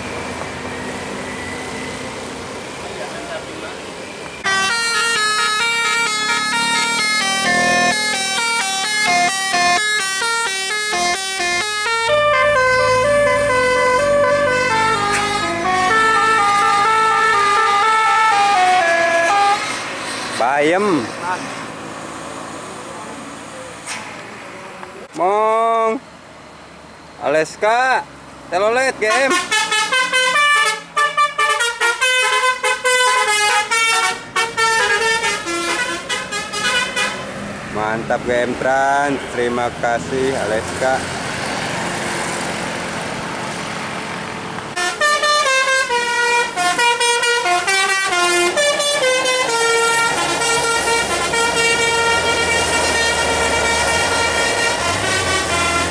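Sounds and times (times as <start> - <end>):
musical air horn playing a tune: 4.4 - 19.7, 29.1 - 37.2, 44.8 - 55.9.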